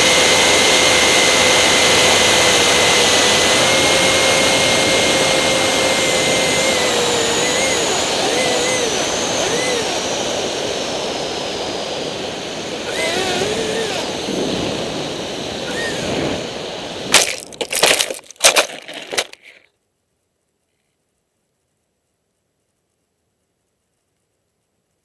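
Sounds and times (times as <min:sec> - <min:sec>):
electric fans whining: 0:00.0 - 0:19.6
model crashing on ground: 0:17.1 - 0:19.6.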